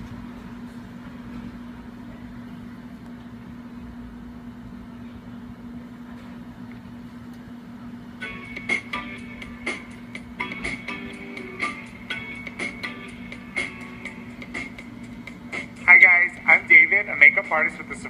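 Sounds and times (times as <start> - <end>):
steady low hum: 0.0 - 18.0
plucked guitar music from speakers: 8.2 - 15.4.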